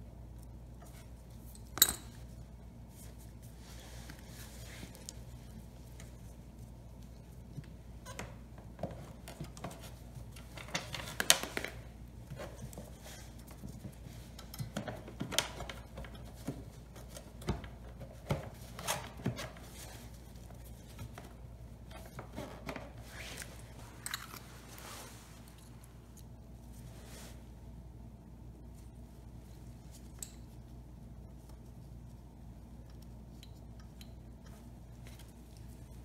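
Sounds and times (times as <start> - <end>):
rustling: 0.4 - 27.8.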